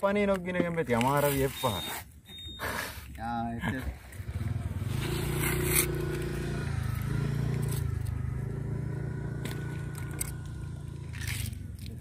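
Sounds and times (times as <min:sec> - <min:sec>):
fish skin scraping and tearing: 0:11.1 - 0:12.0.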